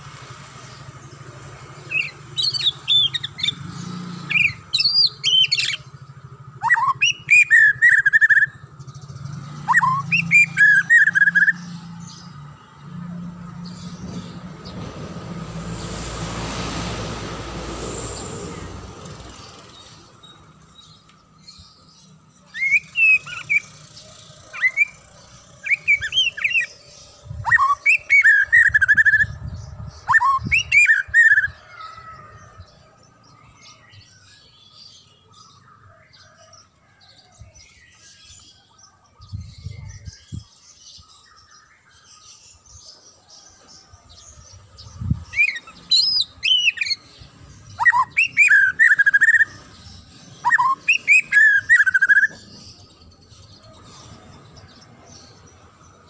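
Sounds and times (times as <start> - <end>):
bird whistling song: 1.9 - 3.6, 4.3 - 5.9, 6.6 - 8.6, 9.2 - 11.8, 22.4 - 31.6, 45.2 - 53.0.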